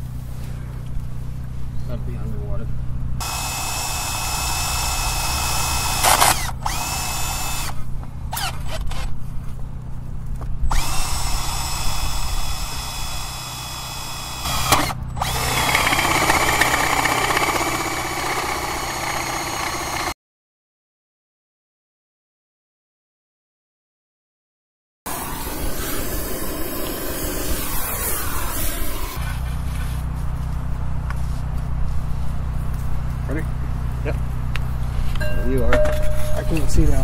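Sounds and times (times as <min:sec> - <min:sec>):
drill boring into concrete: 0:03.2 - 0:09.0, 0:10.7 - 0:20.2.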